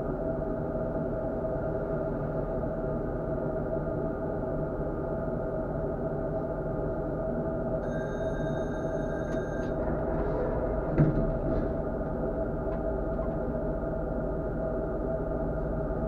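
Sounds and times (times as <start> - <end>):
tram rolling drone: 0.0 - 16.0
high thin ringing tone: 7.8 - 9.8.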